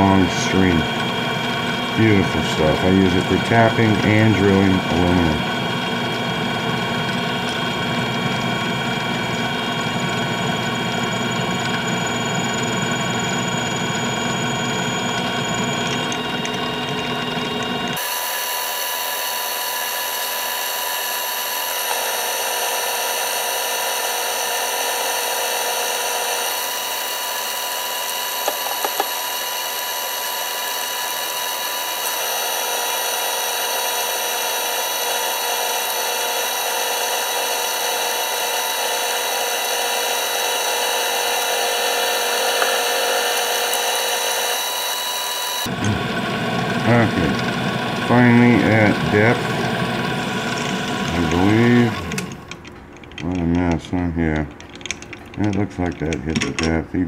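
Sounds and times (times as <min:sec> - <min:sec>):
metal lathe whine: 0:00.0 - 0:56.7.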